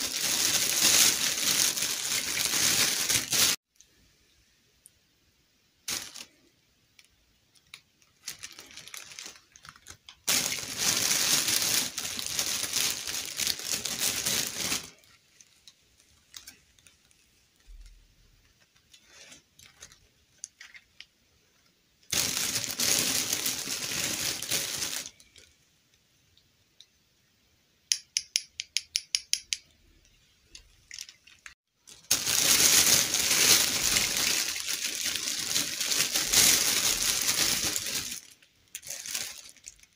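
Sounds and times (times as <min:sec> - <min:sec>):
plastic bag crinkling: 0:00.0 - 0:03.6, 0:05.9 - 0:06.4, 0:07.0 - 0:17.9, 0:18.6 - 0:21.1, 0:22.1 - 0:25.5, 0:30.5 - 0:39.9.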